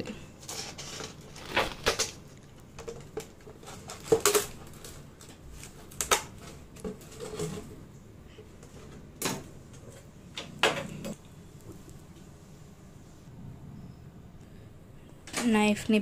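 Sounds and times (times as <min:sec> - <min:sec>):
plastic bottle crackling: 0:00.4 - 0:07.7.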